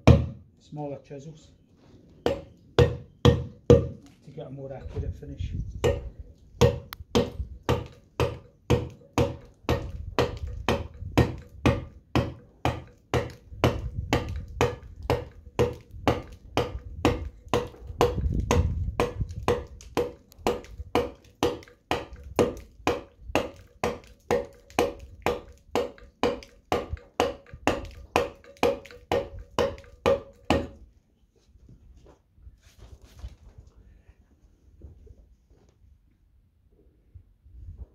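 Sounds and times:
mallet striking chisel on stone: 0.0 - 0.4, 2.2 - 4.0, 5.8 - 30.8.

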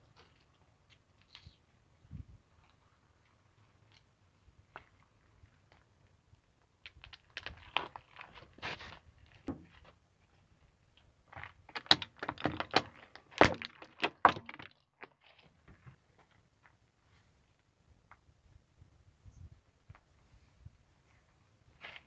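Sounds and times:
plastic cracking under tyre: 11.4 - 15.2.

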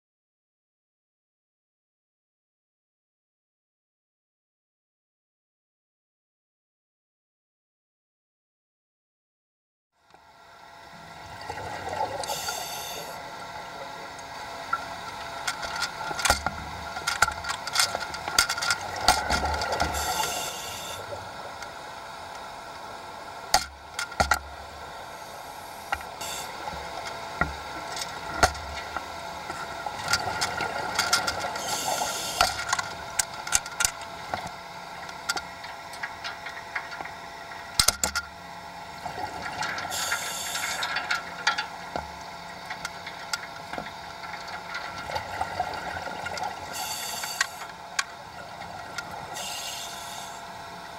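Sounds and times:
steady underwater hum: 10.0 - 50.9
scattered clicks and knocks: 37.8 - 38.3.

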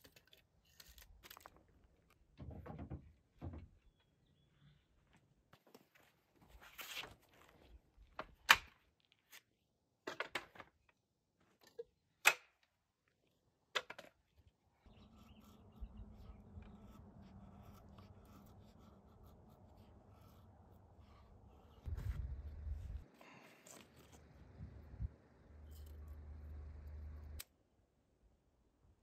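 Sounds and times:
wooden knocks and clacks: 2.4 - 3.7
knife scraping wood: 14.9 - 23.0.

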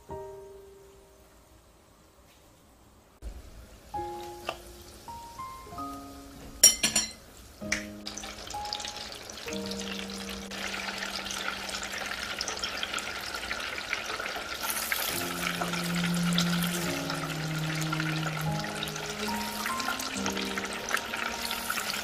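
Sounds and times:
oil sizzling in a deep fryer: 3.2 - 22.0.

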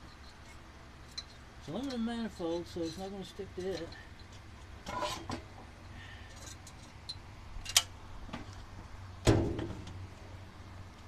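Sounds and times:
metal tools clicking on engine: 0.0 - 5.2.

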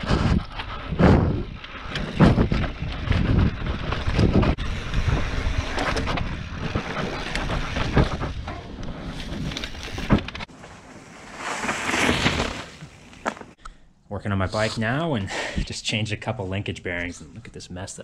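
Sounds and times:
bike knocking and clattering: 0.0 - 10.5
bike tyres rolling on dirt: 0.0 - 13.6.

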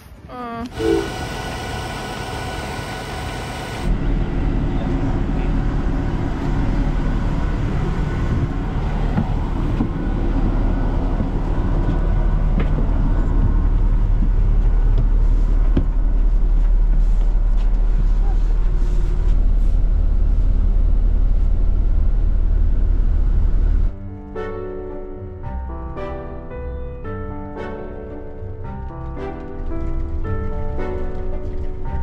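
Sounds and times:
diesel bus engine idling: 0.7 - 23.9.

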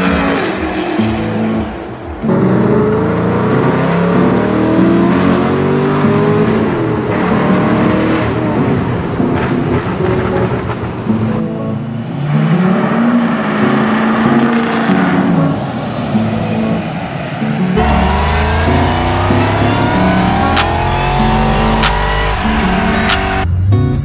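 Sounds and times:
engine revving up and down: 0.0 - 8.9, 17.8 - 23.9
background music: 0.0 - 24.0
engine revving on a dyno: 17.8 - 23.5.

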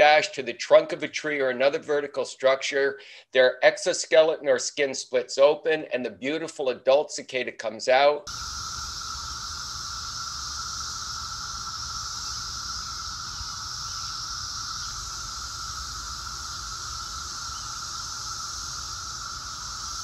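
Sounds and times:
cicadas droning: 8.3 - 20.0.

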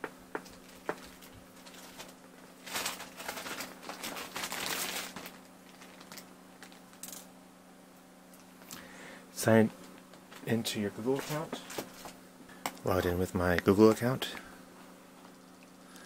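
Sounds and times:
faint low hum: 0.0 - 16.0
crinkling handling noise: 0.3 - 7.4, 9.7 - 14.1.

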